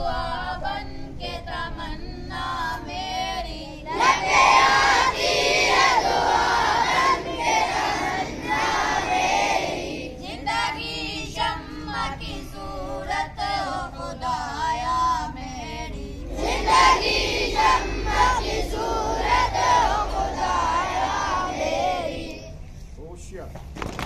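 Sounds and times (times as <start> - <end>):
boys chanting together: 3.9 - 22.5.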